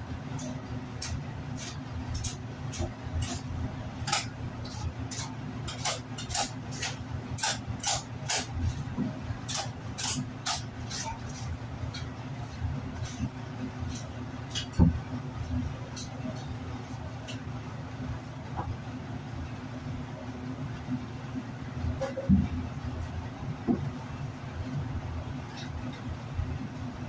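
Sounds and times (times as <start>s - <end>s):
steady low hum: 0.0s - 27.0s
knife cutting and scraping bone: 0.4s - 14.8s.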